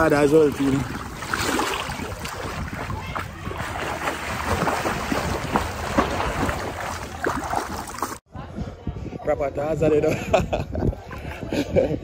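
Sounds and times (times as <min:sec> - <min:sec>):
swimmer splashing water: 0:00.0 - 0:08.2.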